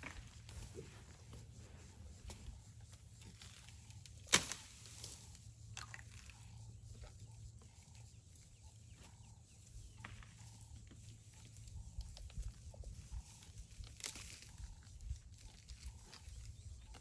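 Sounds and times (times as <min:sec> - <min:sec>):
elephant chewing twigs and leaves: 0:00.0 - 0:17.0
branch snapping: 0:03.5 - 0:05.2.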